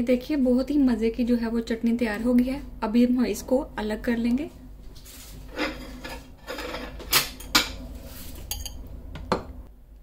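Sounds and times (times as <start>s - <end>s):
spoon scraping and clinking jar: 8.5s - 8.8s.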